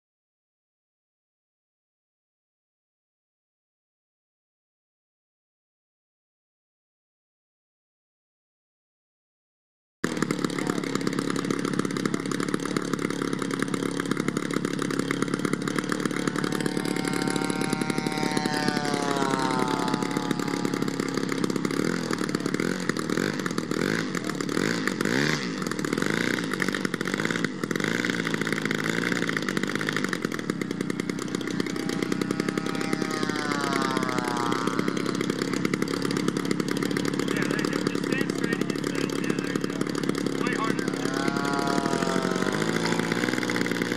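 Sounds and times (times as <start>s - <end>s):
model plane engine running: 10.0s - 43.9s
higher engine note sweeping down: 16.0s - 22.4s, 31.3s - 35.7s, 40.6s - 43.9s.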